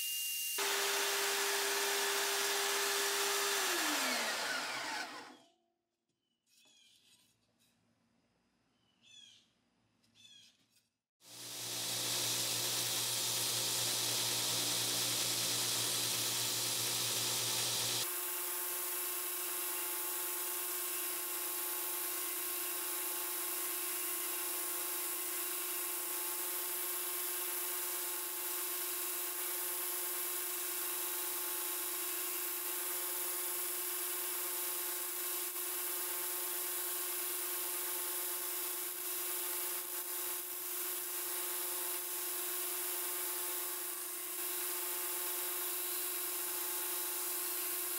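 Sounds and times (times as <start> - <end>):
belt grinder motor hum: 0.6 - 5.4, 11.3 - 18.1
wood sanding on belt hiss: 11.3 - 18.1.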